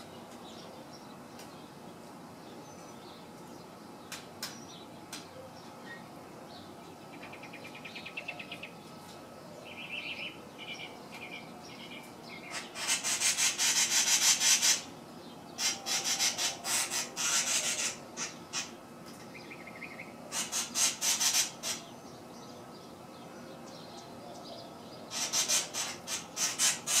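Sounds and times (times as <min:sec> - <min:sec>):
wren rasping chatter: 0:09.7 - 0:14.9, 0:15.5 - 0:22.0, 0:24.6 - 0:27.0.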